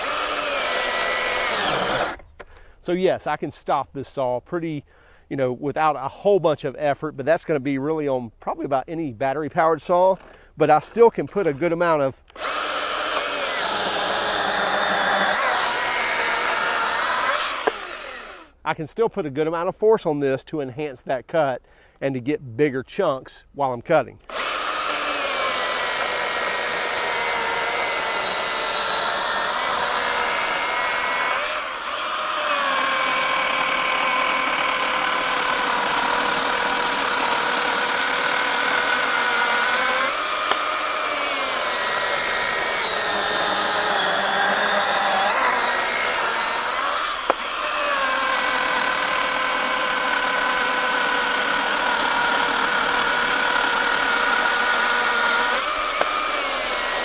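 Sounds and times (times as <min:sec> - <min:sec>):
electric chainsaw cutting log: 0:00.0 - 0:02.4, 0:12.3 - 0:18.6, 0:24.2 - 0:57.0.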